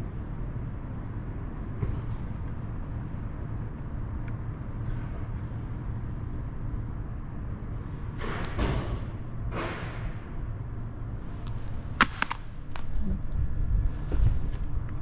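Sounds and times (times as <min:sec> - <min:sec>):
low street rumble: 0:00.0 - 0:15.0.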